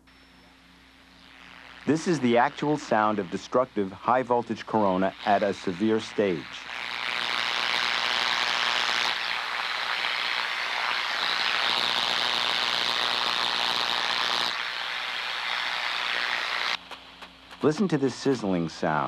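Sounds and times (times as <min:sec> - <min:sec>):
high-voltage corona sizzling: 0:00.0 - 0:19.0
low electrical hum: 0:00.0 - 0:19.0.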